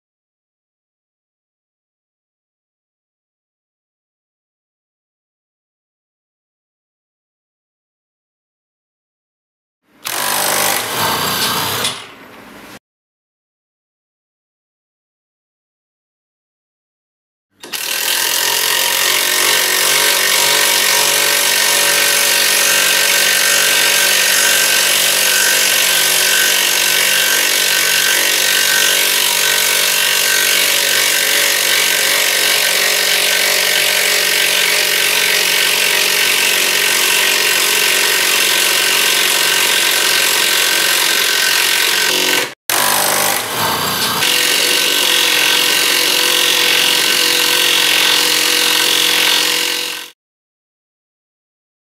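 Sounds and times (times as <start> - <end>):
impact wrench driving screws into wood: 10.0 - 12.0, 17.6 - 21.7.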